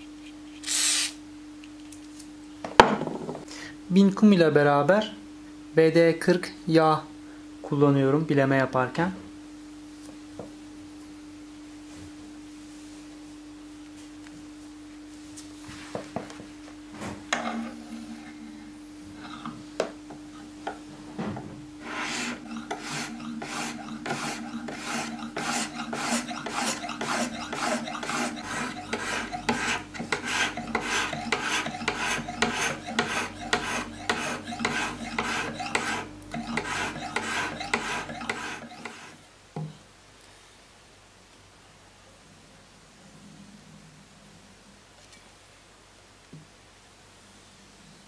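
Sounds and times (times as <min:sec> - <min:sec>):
whetstone rasping on knife blade: 0:21.8 - 0:39.2.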